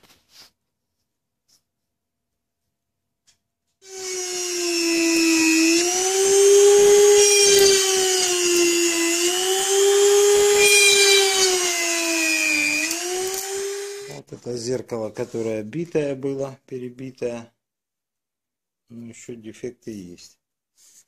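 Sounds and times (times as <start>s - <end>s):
power tool motor whining: 3.8s - 14.2s.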